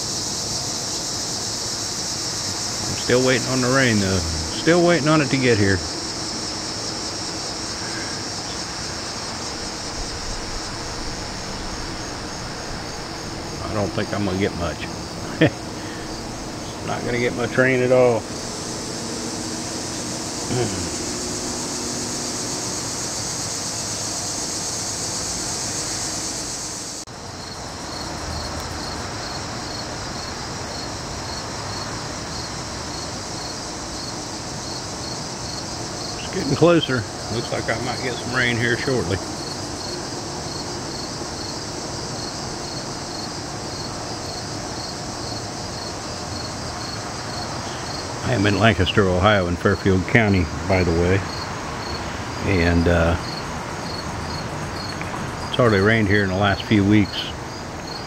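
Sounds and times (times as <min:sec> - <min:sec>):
crickets and insects trilling: 0:00.0 - 0:58.0
steady background hiss: 0:00.0 - 0:58.0
broad background rumble: 0:02.5 - 0:24.1.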